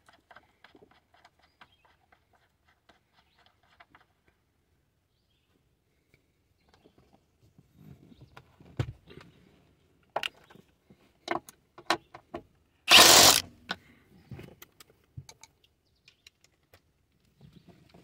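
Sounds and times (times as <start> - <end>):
drill-driver spinning: 12.9 - 13.5.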